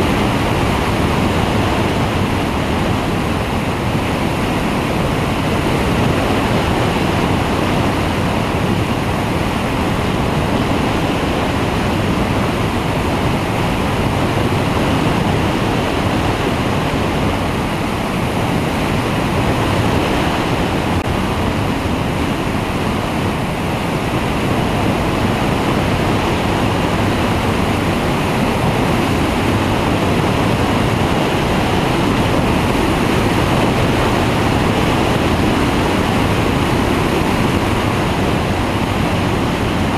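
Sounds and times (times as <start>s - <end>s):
engine and propeller droning: 0.0s - 39.9s
wind buffeting microphone: 0.0s - 39.9s.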